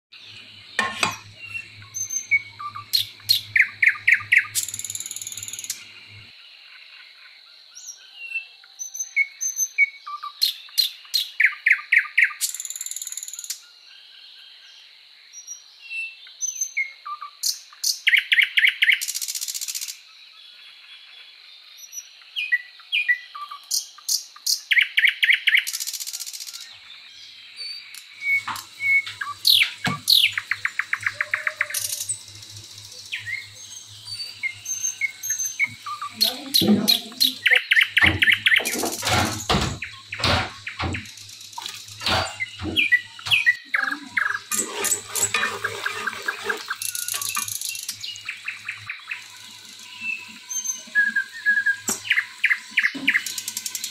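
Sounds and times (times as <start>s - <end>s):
songbird singing: 0.2s - 53.9s.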